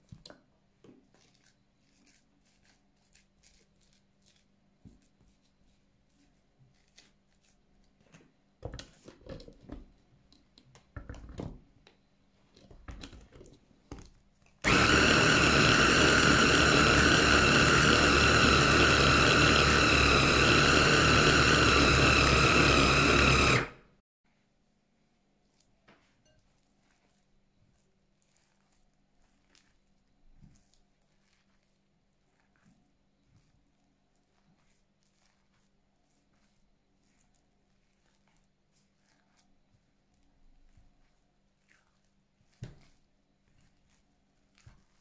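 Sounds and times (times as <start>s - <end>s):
blender whining: 14.6s - 24.0s.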